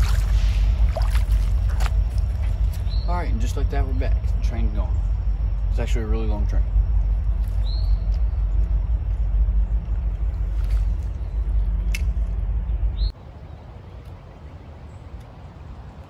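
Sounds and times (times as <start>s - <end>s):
loud low rumble: 0.0s - 13.2s
high bird chirps: 1.9s - 3.6s, 7.3s - 11.9s.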